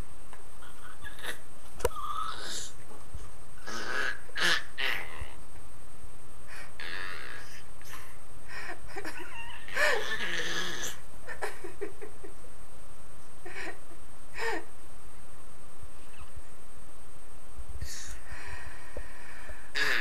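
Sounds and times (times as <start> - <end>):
baby squealing and cooing: 0.8 - 2.8, 3.6 - 5.4, 9.4 - 11.0, 19.8 - 20.0.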